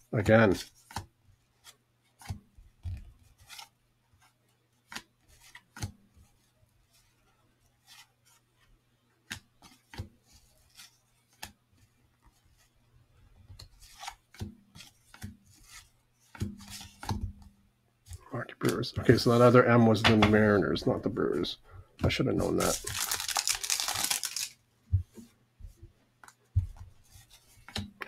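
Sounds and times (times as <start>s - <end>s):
cards flipped by hand: 0.6s - 6.0s, 9.2s - 12.7s, 13.4s - 17.5s, 22.4s - 25.3s, 26.2s - 28.0s.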